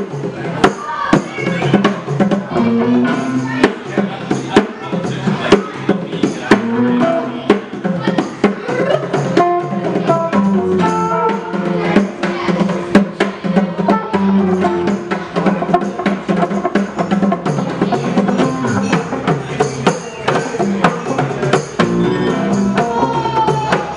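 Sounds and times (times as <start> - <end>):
guitars strummed: 0.0 - 23.9
hand drum beating: 0.0 - 23.9.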